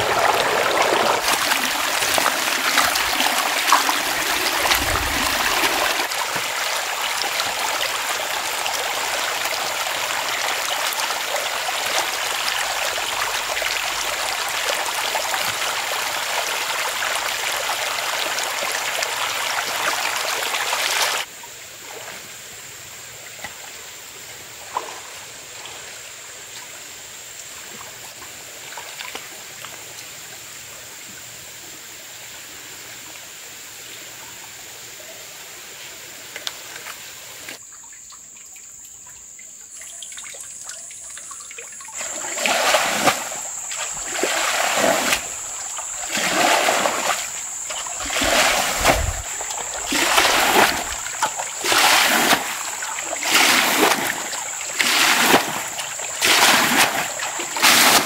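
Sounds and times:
water splashing and sloshing: 0.0s - 22.4s, 23.3s - 31.2s, 36.2s - 58.0s
faint outdoor background: 0.0s - 53.3s.

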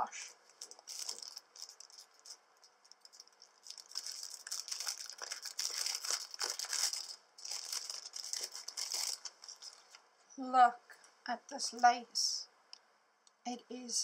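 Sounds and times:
cellophane bag crinkling: 0.4s - 10.0s.

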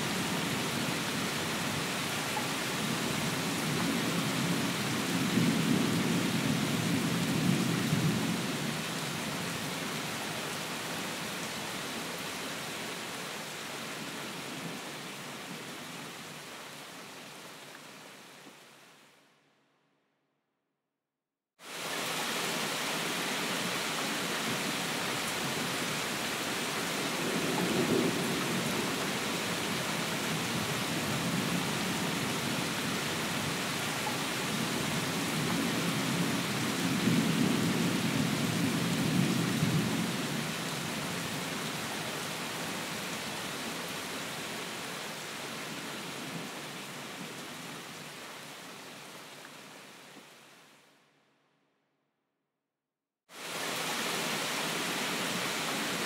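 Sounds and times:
heavy rain hiss: 21.6s - 50.8s, 53.3s - 56.0s.

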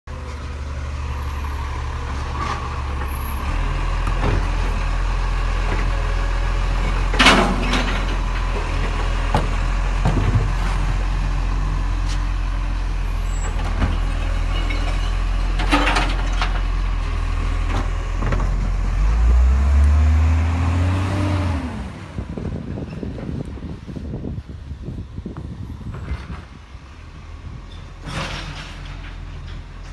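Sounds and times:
diesel truck engine running: 0.1s - 28.1s.

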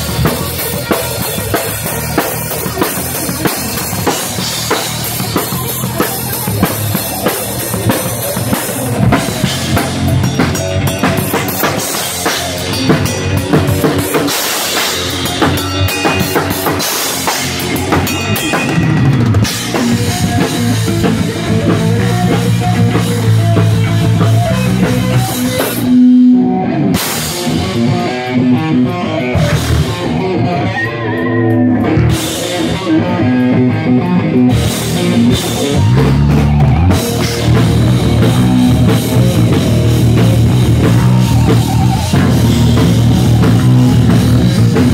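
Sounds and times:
metal band playing: 0.0s - 44.9s.

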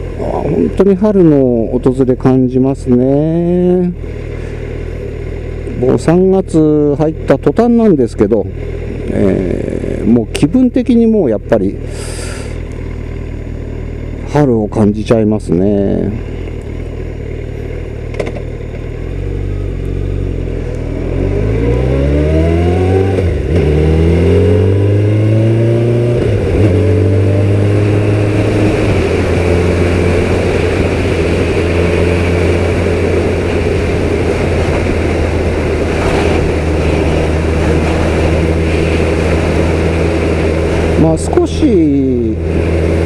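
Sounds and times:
motorcycle engine revving: 0.0s - 43.0s
wind rushing: 27.5s - 41.0s.

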